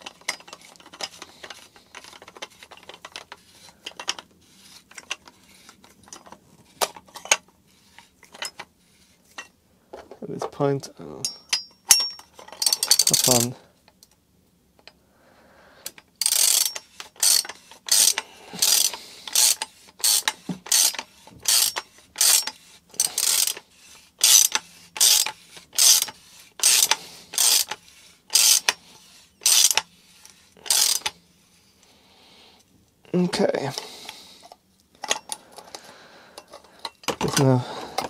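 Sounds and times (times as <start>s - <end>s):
socket ratchet clicking: 16.2s - 23.6s, 24.2s - 28.8s, 29.4s - 29.9s, 30.6s - 31.1s.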